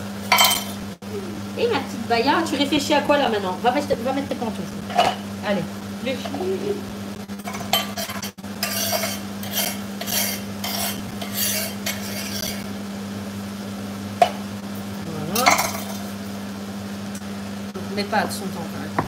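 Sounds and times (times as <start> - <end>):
steady low hum: 0.0 - 19.0
knife scraping on cutting board: 7.4 - 12.7.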